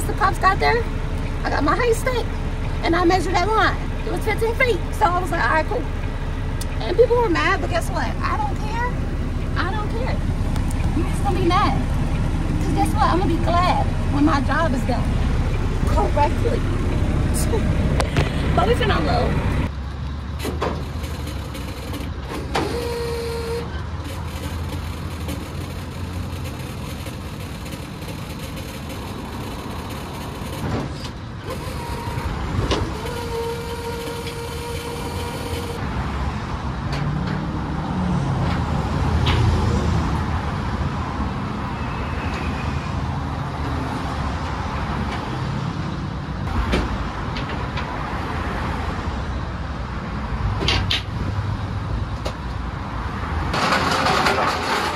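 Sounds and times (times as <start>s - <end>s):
truck engine idling: 0.0s - 35.8s
road traffic: 0.0s - 54.9s.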